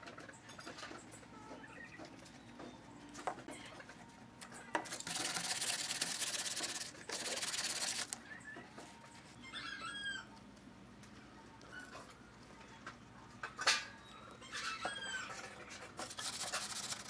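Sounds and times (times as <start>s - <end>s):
sandpaper rubbing on wood: 5.0s - 8.1s, 16.0s - 17.0s.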